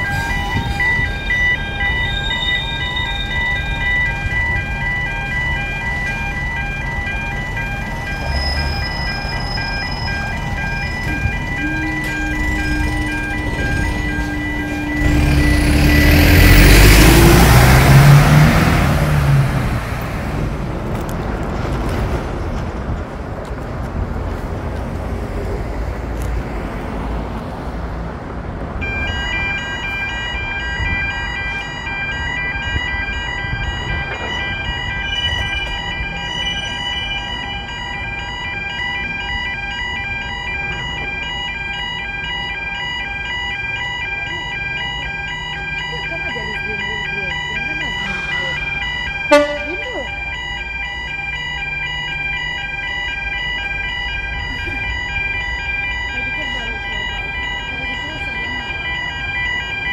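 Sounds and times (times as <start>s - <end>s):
level crossing warning alarm: 0.0s - 19.8s, 28.8s - 59.9s
steady road traffic: 0.0s - 59.9s
loud vehicle passing: 11.0s - 22.8s.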